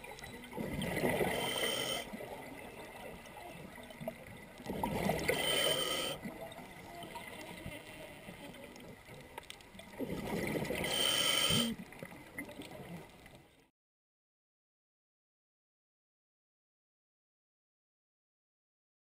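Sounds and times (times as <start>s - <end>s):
gurgling bubbles: 0.0s - 7.8s, 9.8s - 13.1s
faint watery background: 0.0s - 13.7s
diver breathing through regulator: 1.0s - 2.2s, 5.0s - 6.3s, 10.7s - 11.8s.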